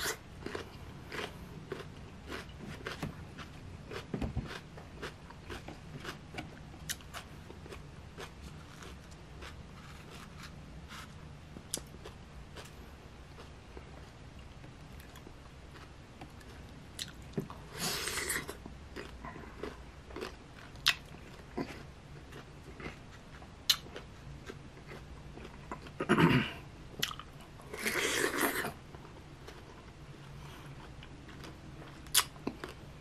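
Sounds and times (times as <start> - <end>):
biting and chewing mango: 0.0 - 14.0, 15.0 - 26.1, 30.7 - 32.9
wet mouth clicks: 32.1 - 32.3.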